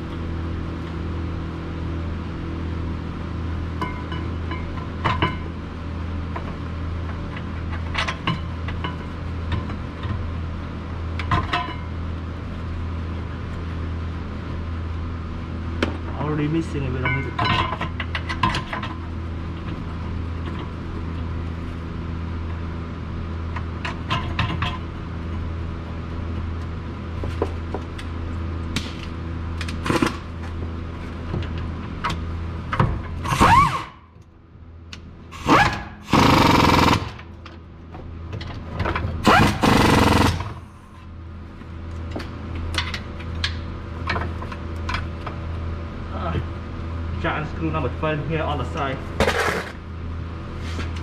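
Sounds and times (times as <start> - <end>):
steady low hum: 0.0 - 51.0
pneumatic wrench bursts: 33.2 - 34.0, 35.3 - 37.2, 39.2 - 40.6.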